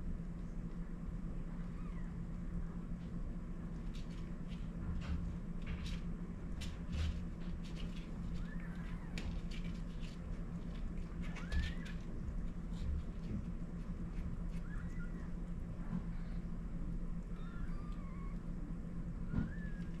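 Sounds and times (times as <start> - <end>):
steady low hum: 0.0 - 20.0
kittens mewing: 14.5 - 15.5, 17.2 - 20.0.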